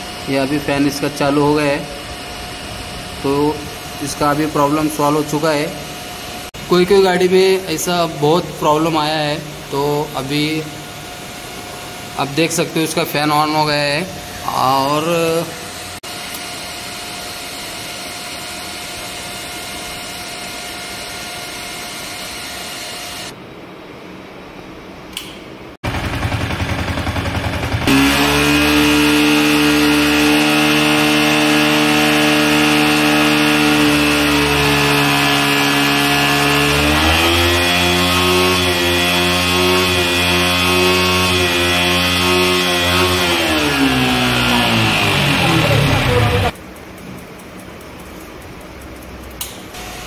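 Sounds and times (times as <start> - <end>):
motorcycle engine running: 25.8 - 37.1, 37.9 - 49.1.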